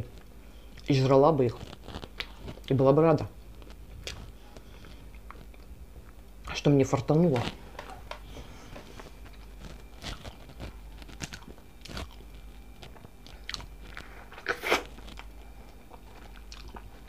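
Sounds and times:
juicy tomato crunch: 0.2s - 8.2s, 9.0s - 17.0s
woman chewing: 9.0s - 17.0s.

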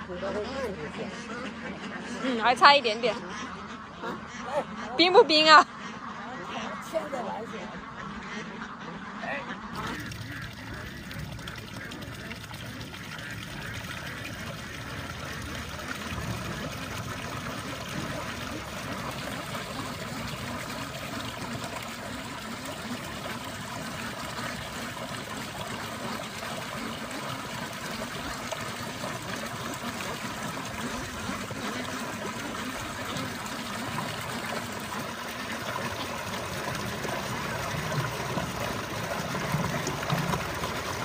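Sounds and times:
water pouring into a pool: 9.7s - 41.0s.

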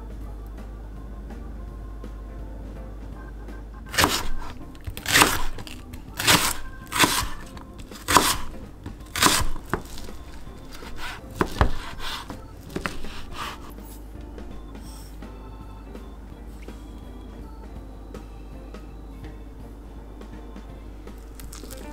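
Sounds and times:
knife slicing spring onion on board: 3.9s - 8.5s, 9.1s - 13.7s
soft knife cuts through fish cake: 3.9s - 13.8s.

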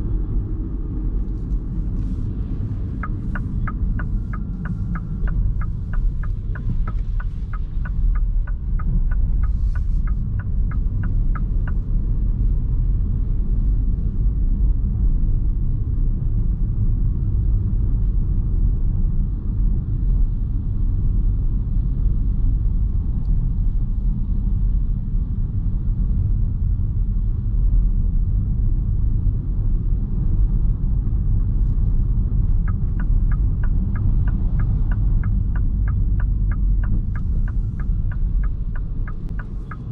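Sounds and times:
road and tyre rumble in car: 0.0s - 39.9s
turn signal ticking: 1.4s - 12.8s, 31.6s - 39.9s.

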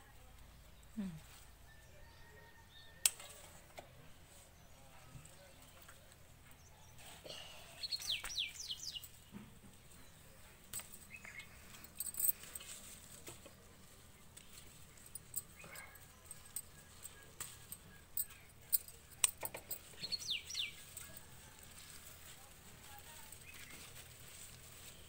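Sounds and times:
small bird chirping: 6.6s - 9.2s, 9.9s - 11.6s, 14.5s - 21.2s.

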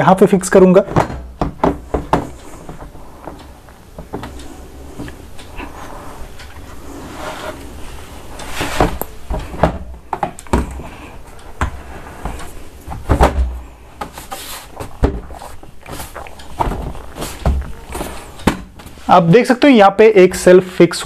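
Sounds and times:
plastic shelf knocking and clicking: 0.8s - 2.9s, 8.7s - 10.8s, 11.6s - 14.2s, 14.8s - 15.3s.

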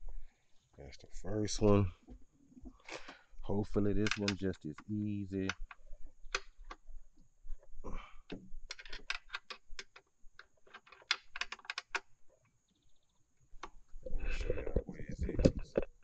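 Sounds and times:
wrench metal clicks: 8.7s - 12.1s.

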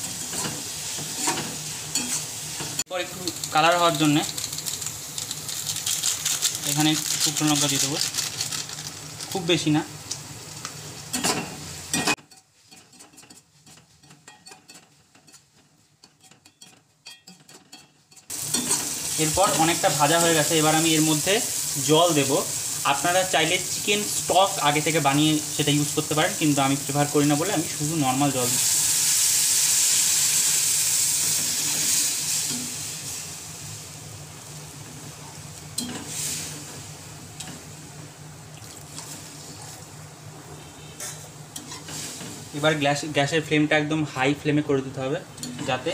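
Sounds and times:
loud frying hiss: 0.0s - 12.2s, 18.3s - 45.9s
food sizzling in a hot pan: 0.0s - 15.9s, 18.1s - 43.3s
metal spatula scraping a pan: 11.1s - 19.0s, 40.8s - 42.3s.

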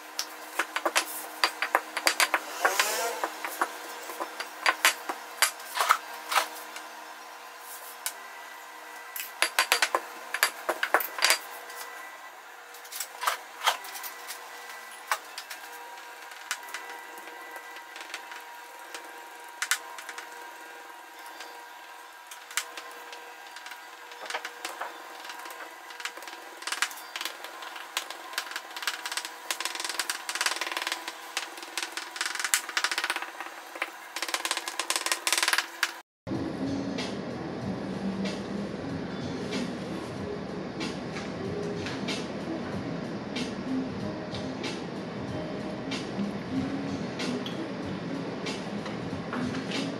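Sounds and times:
pastry wheel clicks: 22.3s - 36.0s.

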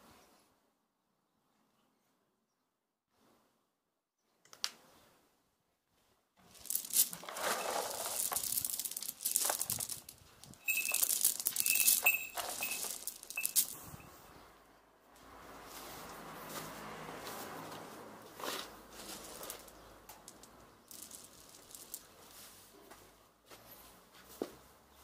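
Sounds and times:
pellets clattering: 6.4s - 14.0s, 18.6s - 22.5s.

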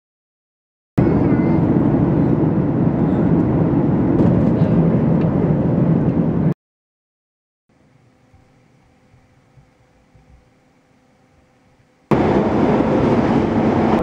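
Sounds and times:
airliner cabin engine rush: 1.0s - 6.6s, 12.1s - 14.0s.

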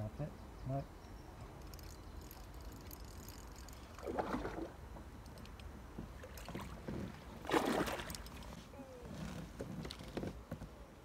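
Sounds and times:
splash at water surface: 7.4s - 8.2s.

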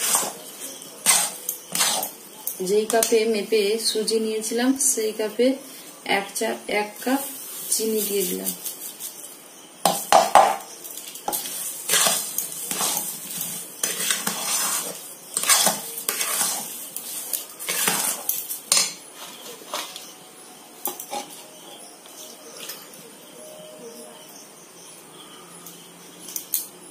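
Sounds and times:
spatula scraping metal pan: 0.0s - 2.3s, 11.0s - 20.1s.

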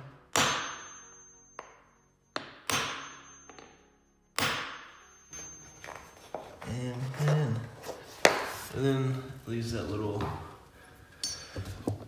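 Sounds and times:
hammer striking metal nail setter: 0.3s - 5.6s.

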